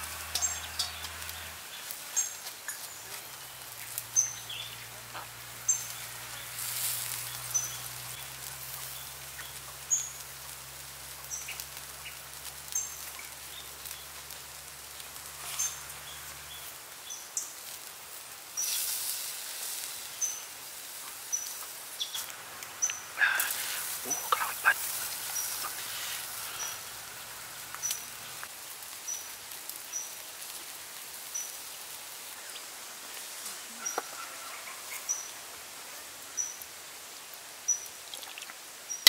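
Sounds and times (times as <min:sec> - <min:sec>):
meat sizzling on charcoal grill: 0:00.0 - 0:39.0.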